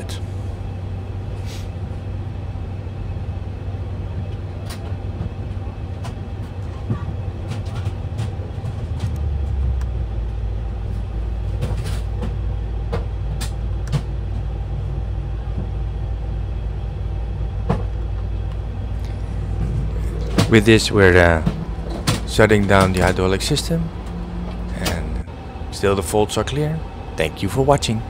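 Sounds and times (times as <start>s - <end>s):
aircraft systems droning: 0.0s - 28.0s.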